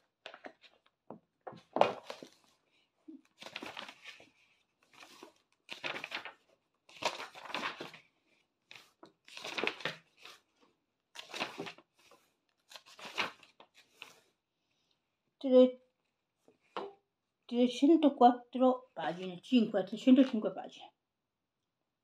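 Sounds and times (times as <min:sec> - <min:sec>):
book pages rustling: 0:00.1 - 0:14.4.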